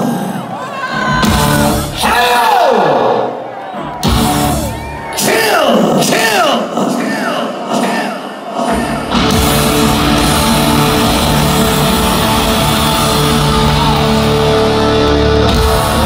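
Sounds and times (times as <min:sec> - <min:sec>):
heavy metal band playing live: 0:01.0 - 0:02.8, 0:03.8 - 0:05.3, 0:08.6 - 0:16.0.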